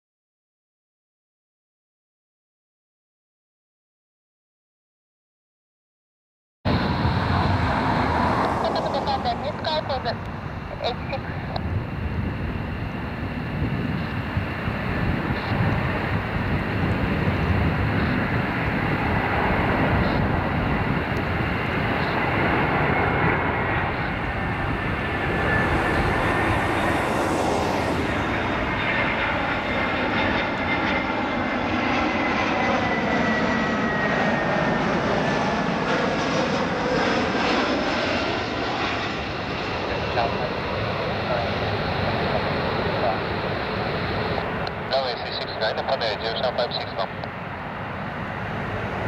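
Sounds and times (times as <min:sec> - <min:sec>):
jet engines rumbling with whine: 0:06.7 - 0:49.0.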